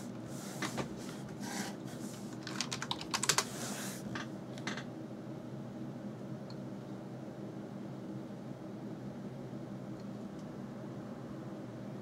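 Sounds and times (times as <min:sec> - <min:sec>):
keyboard keys clicking: 0:02.4 - 0:03.5.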